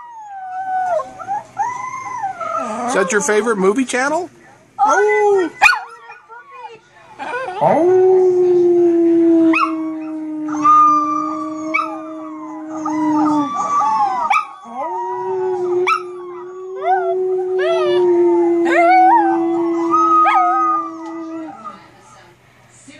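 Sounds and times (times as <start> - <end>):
small dog howling: 7.3 - 21.8.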